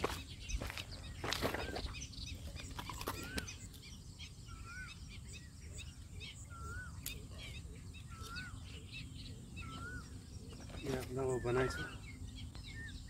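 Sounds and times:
footsteps on wet mud: 0:00.0 - 0:03.9
small birds chirping: 0:00.0 - 0:13.0.

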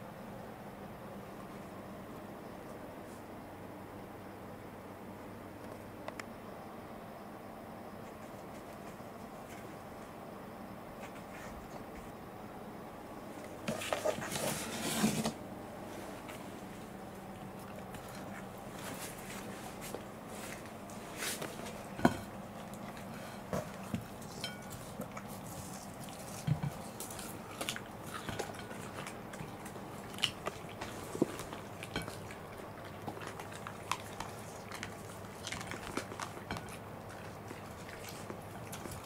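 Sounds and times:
faint steady hum: 0:00.0 - 0:39.0
dogs chewing watermelon: 0:16.6 - 0:39.0.

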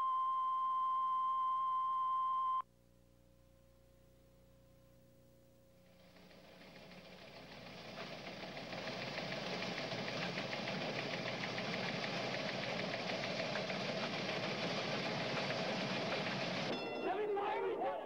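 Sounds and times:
crowd of traders shouting: 0:16.8 - 0:18.0.

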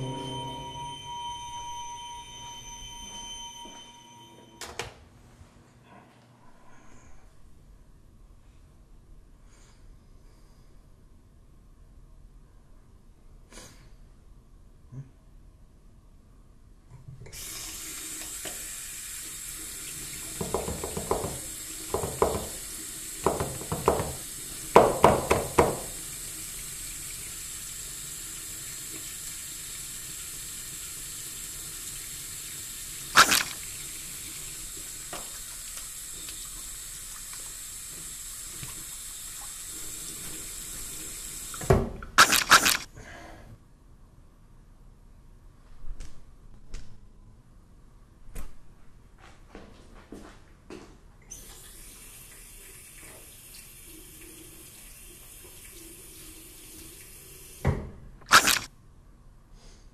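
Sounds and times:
faucet running into sink: 0:17.3 - 0:42.8, 0:51.3 - 0:58.7
water splashing: 0:33.1 - 0:33.8, 0:58.3 - 0:58.7
sharp click: 0:42.2 - 0:42.9, 0:58.3 - 0:58.7.

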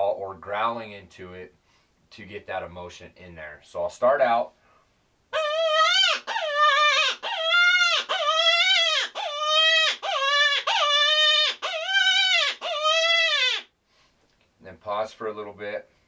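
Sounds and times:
predator call wailing: 0:05.3 - 0:13.7.

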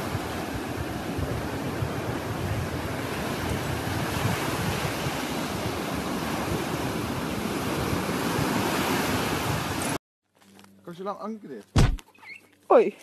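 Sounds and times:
small waves breaking on sand: 0:00.0 - 0:10.0
wind buffeting microphone: 0:00.0 - 0:10.0.

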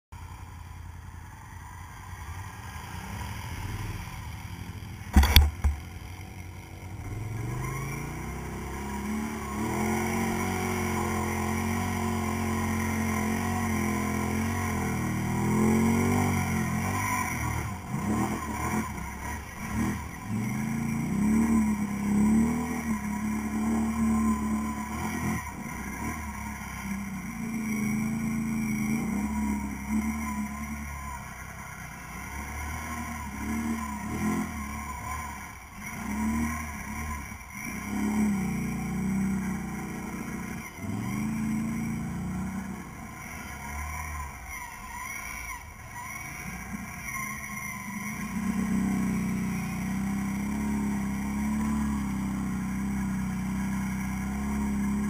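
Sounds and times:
atv engine revving: 0:01.2 - 0:55.0
sharp loud knocks: 0:05.1 - 0:05.9.

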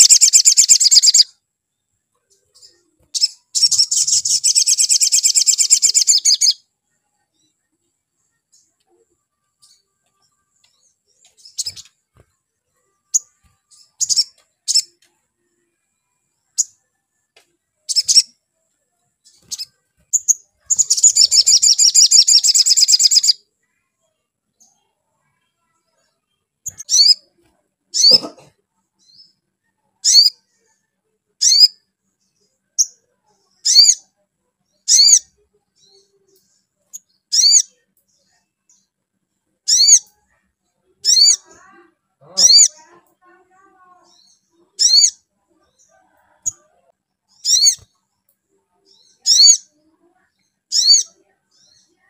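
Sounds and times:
bird chirping and trilling: 0:00.0 - 0:01.4, 0:02.3 - 0:06.7, 0:09.6 - 0:12.0, 0:13.0 - 0:15.0, 0:17.9 - 0:18.4, 0:19.2 - 0:23.4, 0:26.6 - 0:28.4, 0:30.0 - 0:30.4, 0:31.4 - 0:31.8, 0:33.6 - 0:34.0, 0:34.8 - 0:36.2, 0:36.9 - 0:37.8, 0:39.6 - 0:40.2, 0:41.0 - 0:42.8, 0:43.8 - 0:45.2, 0:47.3 - 0:47.9, 0:48.9 - 0:49.8, 0:50.6 - 0:52.0.

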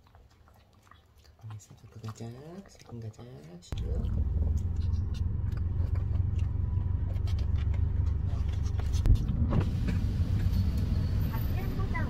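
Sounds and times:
road and engine rumble: 0:03.7 - 0:12.0.

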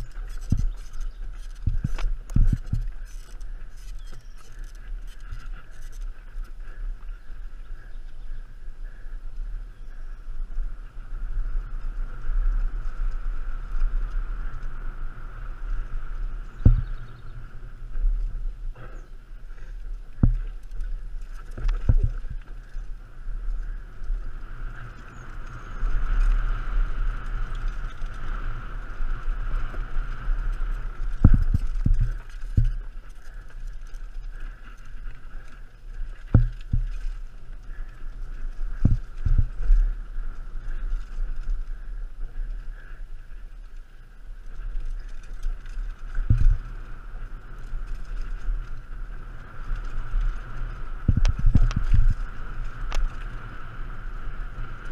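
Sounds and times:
bike tyres rolling over dirt: 0:00.0 - 0:54.9
wind rumble on microphone: 0:00.0 - 0:54.9
bike knocks and rattles: 0:16.5 - 0:17.4, 0:20.2 - 0:22.8, 0:29.4 - 0:39.9, 0:45.0 - 0:46.8.

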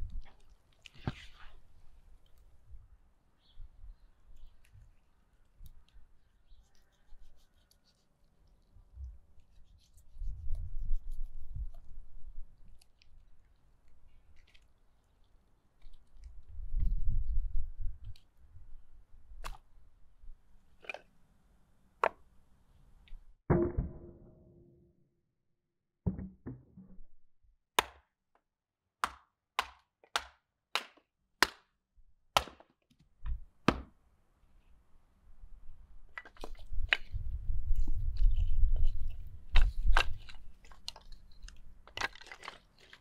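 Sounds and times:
hatchet chopping wood: 0:27.8 - 0:28.1, 0:29.0 - 0:31.7, 0:32.4 - 0:32.8, 0:33.7 - 0:33.9.

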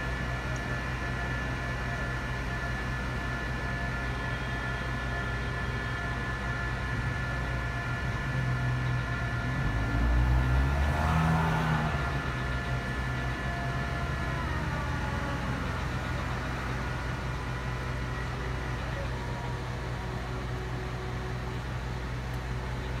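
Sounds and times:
heavy machinery engine running: 0:00.0 - 0:23.0.

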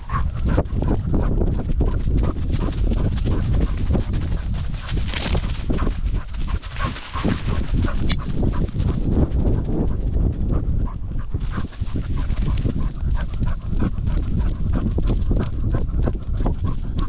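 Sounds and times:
dog panting: 0:00.0 - 0:17.0
wind rumble on microphone: 0:00.0 - 0:17.0.

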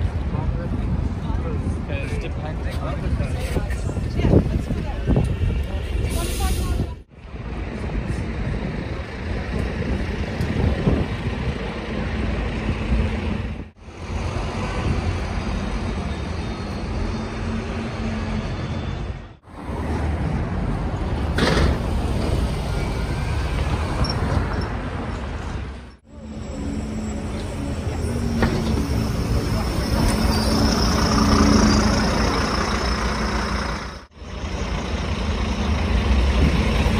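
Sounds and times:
traffic noise: 0:00.0 - 0:36.9
diesel bus engines pulling away: 0:20.7 - 0:36.9.

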